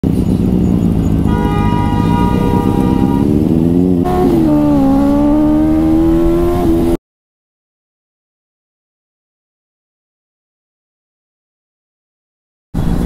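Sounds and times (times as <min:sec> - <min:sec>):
motorcycle engine accelerating: 0:00.0 - 0:07.0.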